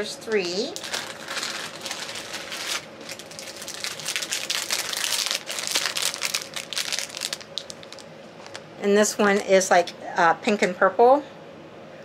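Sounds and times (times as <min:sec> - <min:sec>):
plastic bags crinkling: 0:00.2 - 0:08.7.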